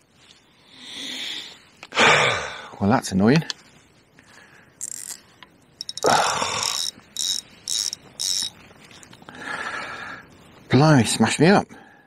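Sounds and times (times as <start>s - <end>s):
faint rustle: 0.0s - 1.8s, 3.2s - 10.8s
fishing reel ticking: 4.8s - 5.2s, 5.8s - 8.6s.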